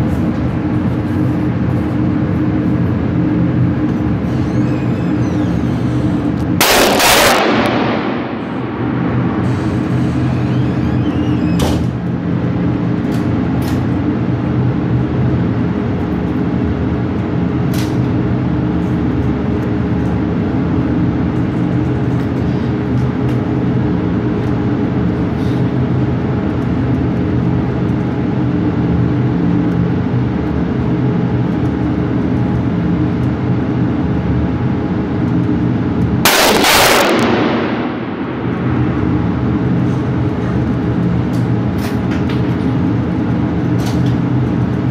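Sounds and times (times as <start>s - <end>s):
air handling drone: 0.0s - 44.9s
loud gunshot with echo: 6.6s - 9.3s, 36.3s - 38.5s.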